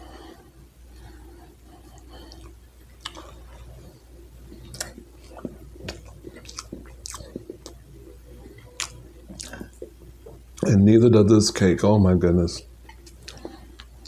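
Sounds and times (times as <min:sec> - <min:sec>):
man chewing with wet mouth smacks: 0:01.3 - 0:10.7, 0:12.8 - 0:14.0.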